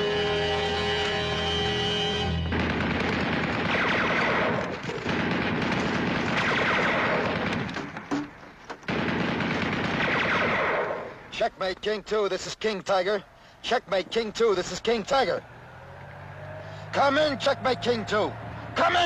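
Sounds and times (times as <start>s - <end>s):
machine-gun fire: 2.5s - 8.0s, 8.9s - 11.1s.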